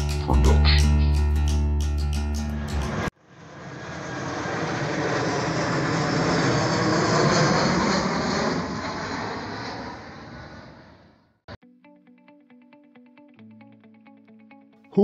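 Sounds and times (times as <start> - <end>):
jet aircraft roar: 2.6 - 11.3.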